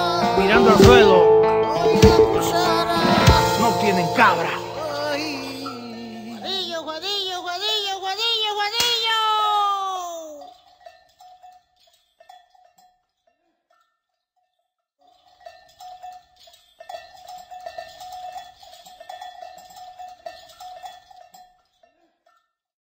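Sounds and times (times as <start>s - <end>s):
livestock bells clanking: 0.0s - 6.9s, 10.4s - 13.0s, 15.1s - 22.4s.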